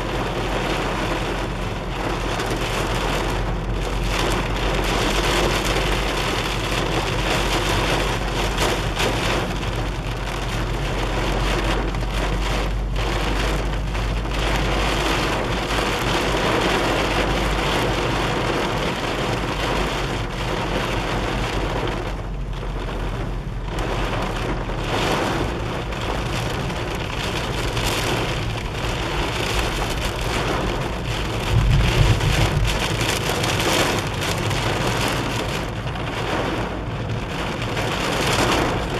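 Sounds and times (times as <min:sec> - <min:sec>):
car low hum: 0:00.0 - 0:38.9
heavy rain on car roof: 0:00.0 - 0:38.9
low rumble: 0:23.1 - 0:38.9.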